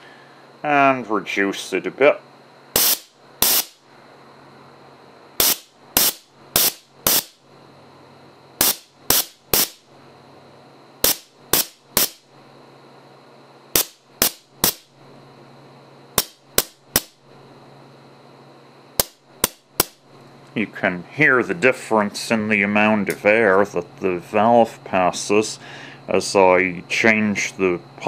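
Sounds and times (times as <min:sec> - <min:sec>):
compressed air blasts: 0:02.7 - 0:03.8, 0:05.4 - 0:07.4, 0:08.6 - 0:09.8, 0:11.0 - 0:12.2, 0:13.7 - 0:14.9.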